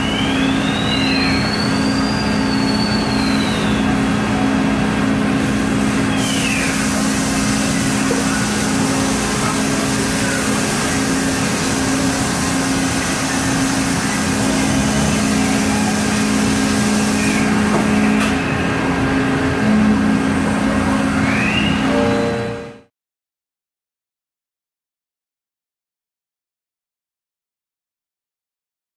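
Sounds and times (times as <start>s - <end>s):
even hiss: 5.9s - 18.2s
machine hum: 6.7s - 22.9s.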